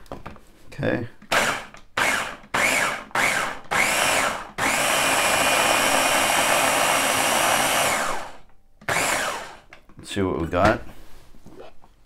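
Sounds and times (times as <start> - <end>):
food processor motor whine: 1.3 - 9.7.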